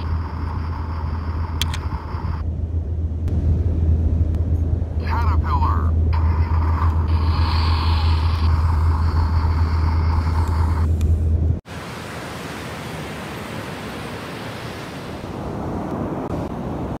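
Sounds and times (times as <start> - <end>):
wind rumbling on microphone: 0.0 - 11.6
ocean surf: 11.7 - 17.0.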